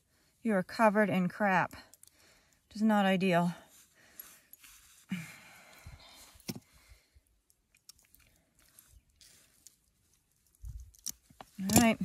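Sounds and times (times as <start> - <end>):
rustle of handling: 8.0 - 12.0.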